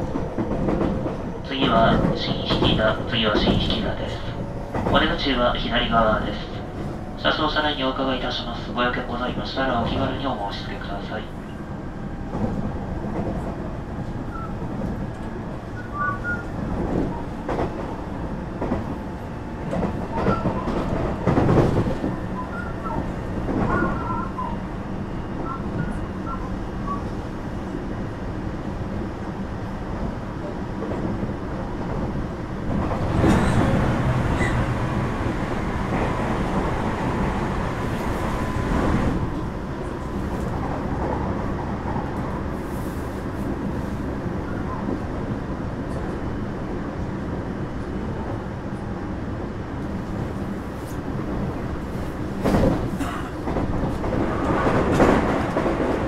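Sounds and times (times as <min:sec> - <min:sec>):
rail joint clacks: 0:00.0 - 0:11.6, 0:12.2 - 0:24.6, 0:30.8 - 0:42.4, 0:50.9 - 0:56.0
train rolling rumble: 0:00.0 - 0:56.0.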